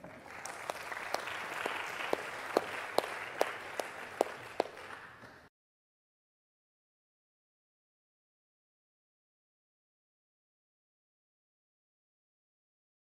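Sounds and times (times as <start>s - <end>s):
audience applauding: 0.0s - 5.5s
loud individual claps: 0.0s - 5.5s.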